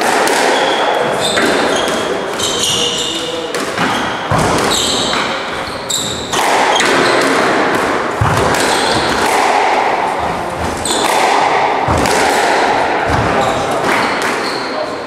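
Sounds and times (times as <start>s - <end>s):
shoes squeaking on wooden floor: 0.6s - 7.3s, 13.1s - 14.9s
squash ball knocking off walls: 3.5s - 14.4s.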